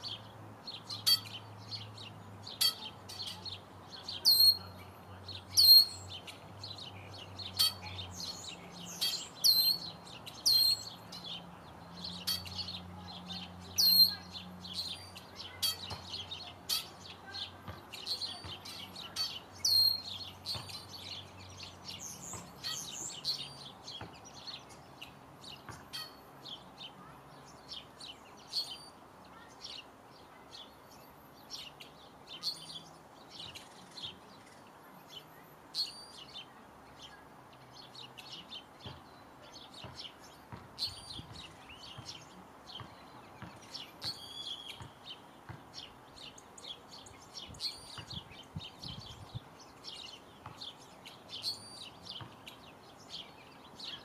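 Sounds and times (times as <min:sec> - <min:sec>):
songbirds chirping: 0:00.0 - 0:54.0.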